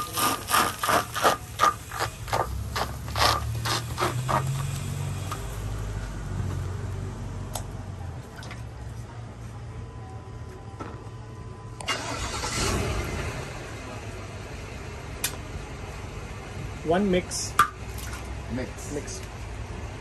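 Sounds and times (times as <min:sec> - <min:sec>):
dough scraping on a griddle: 0:00.0 - 0:05.3
low steady rumble: 0:12.5 - 0:20.0.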